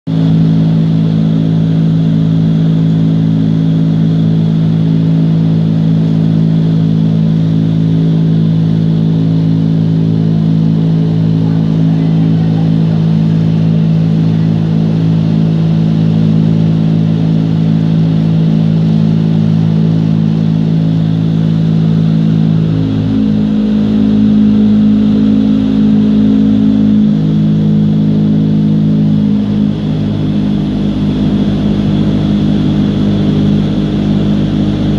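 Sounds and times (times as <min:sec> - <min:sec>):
wind tunnel fans droning: 0:00.1 - 0:34.9.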